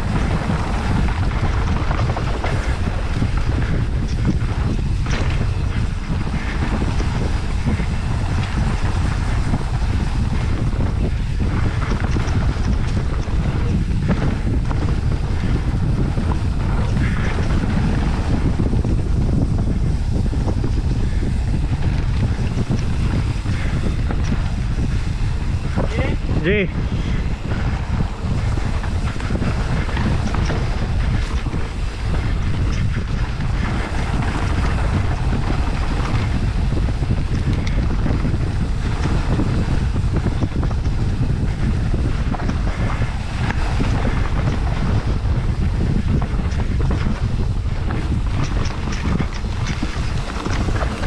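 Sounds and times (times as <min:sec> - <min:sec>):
bike knocking and rattling: 0:00.0 - 0:51.0
wind buffeting microphone: 0:00.0 - 0:51.0.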